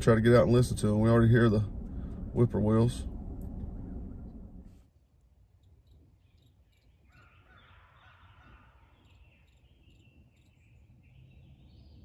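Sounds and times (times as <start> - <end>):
small birds chirping: 5.5 - 12.0
distant turkeys gobbling: 6.7 - 10.0.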